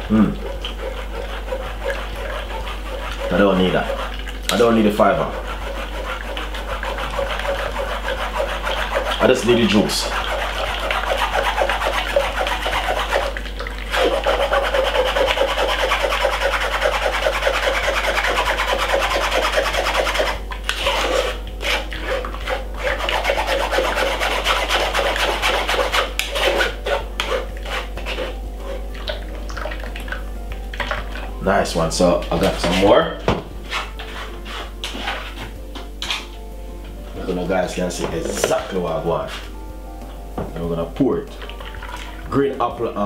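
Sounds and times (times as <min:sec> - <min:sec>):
spoon scraping metal sieve: 0:18.4 - 0:29.9, 0:33.6 - 0:36.3.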